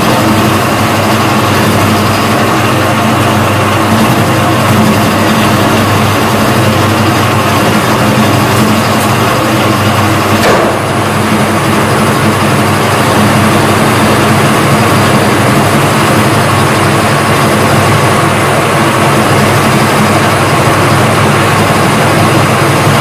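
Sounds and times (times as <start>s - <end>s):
metal lathe running: 0.0s - 23.0s
brief knock: 10.4s - 10.9s.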